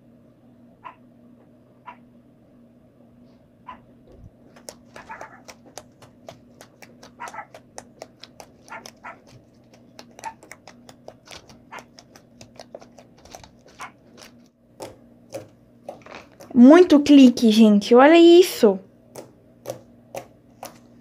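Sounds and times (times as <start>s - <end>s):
slime being kneaded by hand: 4.2s - 17.1s, 19.0s - 21.0s.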